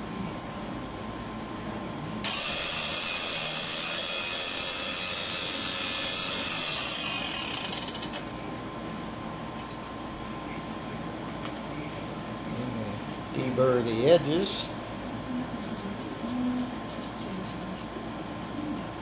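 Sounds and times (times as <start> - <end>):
grinding wheel high whine: 2.2 - 8.2.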